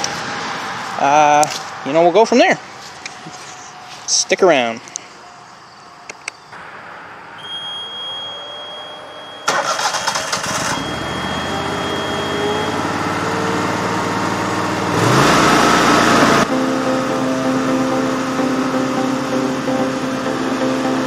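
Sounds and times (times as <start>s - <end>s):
engine starting and running: 9.2s - 21.0s.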